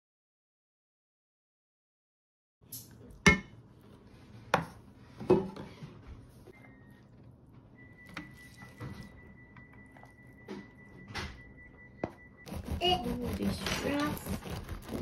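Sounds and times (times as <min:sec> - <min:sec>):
faint steady high tone: 0:07.7 - 0:13.0.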